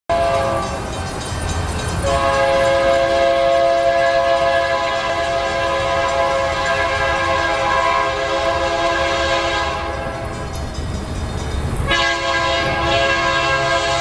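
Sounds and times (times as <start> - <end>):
locomotive air horn: 0.1 - 0.8, 2.0 - 10.2, 11.9 - 14.0
train rumble: 0.1 - 14.0.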